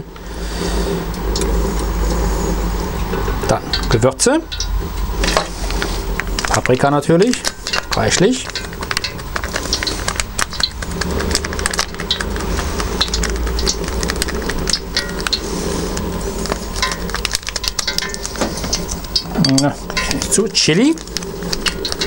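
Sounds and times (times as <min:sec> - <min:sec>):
low steady rumble: 0:00.0 - 0:22.0
spice sachet crinkling: 0:05.7 - 0:19.2, 0:19.8 - 0:22.0.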